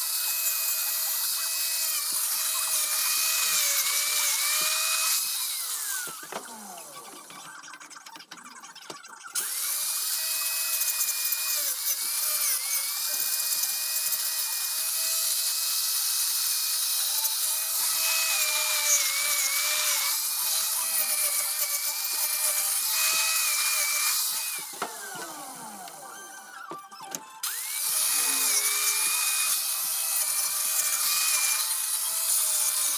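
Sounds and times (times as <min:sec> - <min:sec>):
grinder winding down: 0:00.0 - 0:07.4, 0:09.4 - 0:26.6, 0:27.4 - 0:32.9
angle grinder cutting wood: 0:00.0 - 0:07.5, 0:09.4 - 0:32.9.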